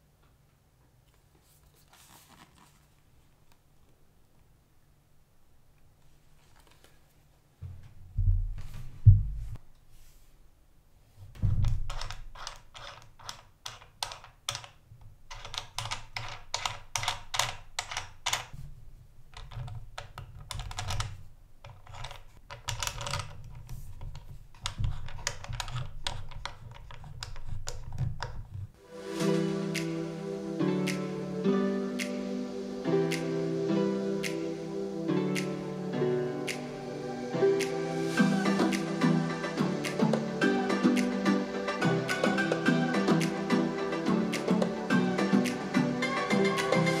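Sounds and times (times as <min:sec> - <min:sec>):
heavy thumps of speaker cabinet: 0:07.6 - 0:09.6.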